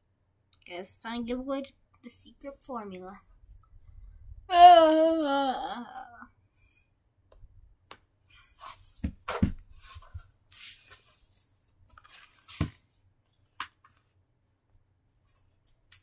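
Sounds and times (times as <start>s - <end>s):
rustling of stuffed toys: 8.2s - 14.2s.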